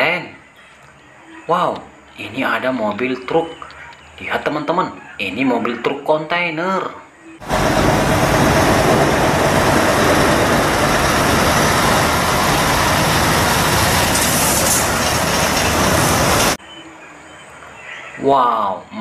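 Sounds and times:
lorry diesel engine rumbling: 7.4 - 16.6.

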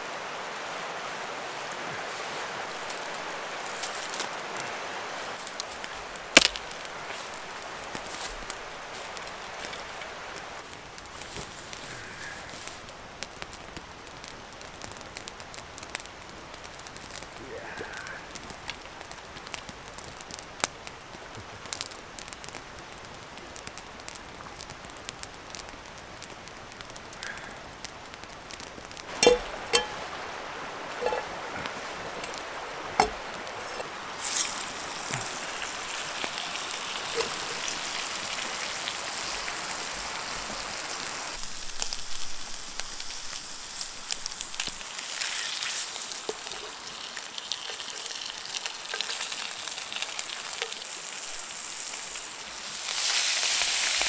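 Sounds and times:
faint crackling: 1.6 - 54.0
fish sizzling in a frying pan: 5.2 - 20.7, 21.5 - 54.0
pan and utensils clanking: 29.1 - 30.1, 30.9 - 31.4, 33.0 - 34.6.

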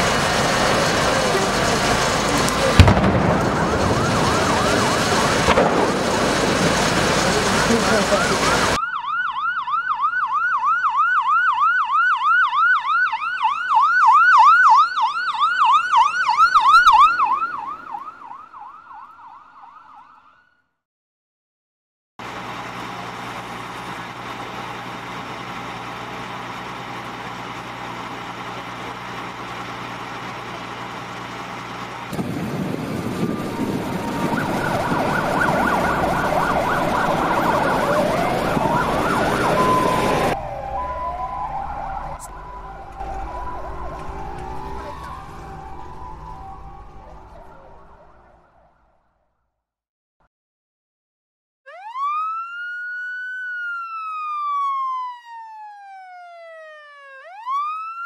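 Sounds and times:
low engine hum: 0.0 - 8.8, 22.2 - 48.6
street traffic noise: 0.0 - 8.8, 22.2 - 48.6
siren wailing: 0.0 - 20.6, 32.2 - 49.2, 51.7 - 58.0
siren yelping: 1.1 - 20.6, 32.7 - 49.0, 51.7 - 58.0.

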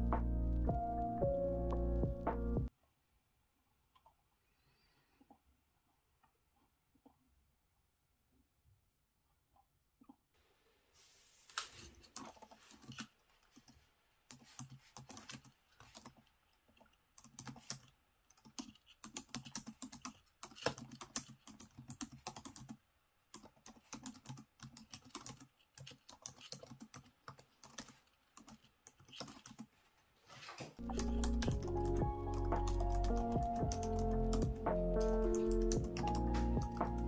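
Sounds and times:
fast keyboard typing: 12.2 - 13.7, 14.3 - 16.3, 17.2 - 29.7, 30.8 - 37.0.

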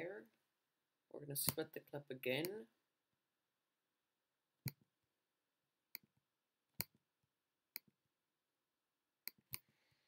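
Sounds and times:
mouse button clicks: 9.2 - 9.7.

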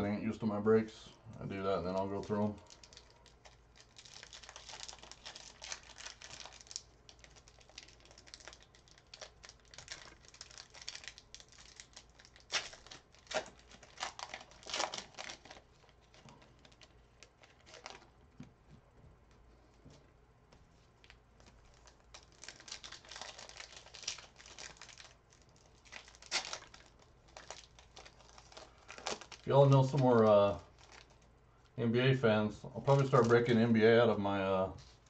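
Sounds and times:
wrappers tearing and crinkling: 1.9 - 18.1, 21.0 - 31.3, 32.8 - 33.6.

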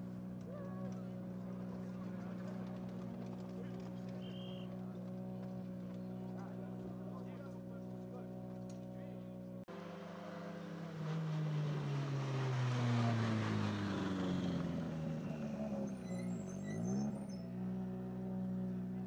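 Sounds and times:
car driving past: 9.7 - 19.0
engine revs dipping and rising: 9.7 - 19.0.

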